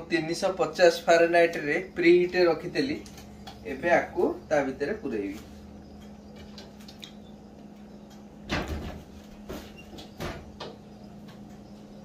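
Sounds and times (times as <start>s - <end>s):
faint steady hum: 0.0s - 12.0s
oven door clunks and clicks: 8.4s - 10.9s.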